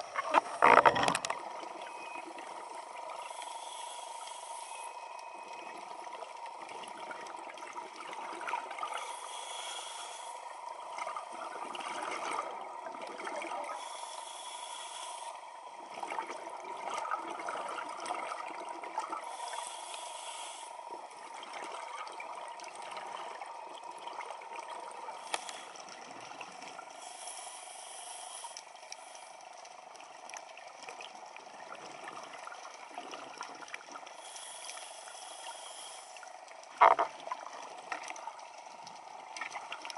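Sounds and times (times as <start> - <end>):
faint steady tone: 0.0 - 39.9
scuba regulator inhalation hiss: 3.2 - 5.0, 8.9 - 10.5, 13.8 - 15.4, 19.2 - 20.8, 25.2 - 25.8, 27.0 - 29.4, 34.2 - 36.2.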